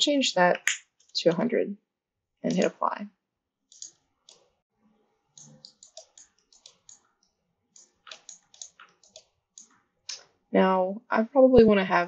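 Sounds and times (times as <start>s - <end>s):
mouse and keyboard clicks: 3.7s - 4.5s, 5.4s - 7.1s, 7.8s - 9.8s.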